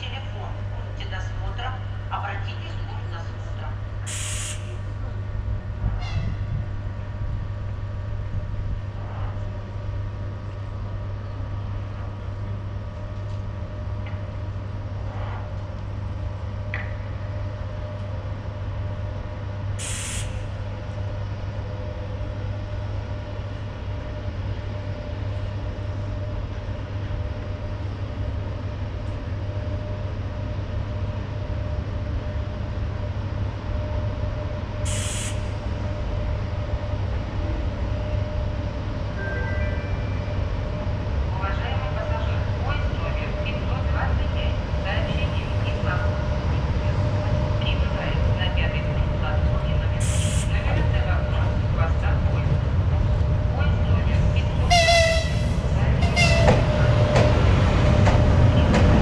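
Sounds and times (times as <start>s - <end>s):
electric locomotive drone: 0.0s - 59.0s
short hisses of released air: 4.1s - 4.7s, 19.8s - 20.4s, 34.9s - 35.5s.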